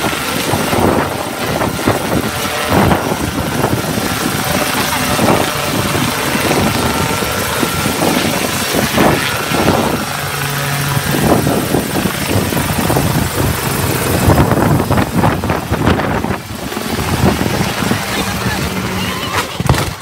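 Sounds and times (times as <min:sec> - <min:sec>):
helicopter engine and rotor: 0:00.0 - 0:20.0.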